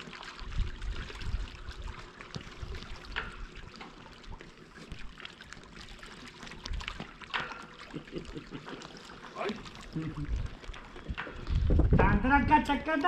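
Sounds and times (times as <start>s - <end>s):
water lapping among boulders: 0.0s - 13.0s
low thumps and knocks: 11.1s - 12.3s.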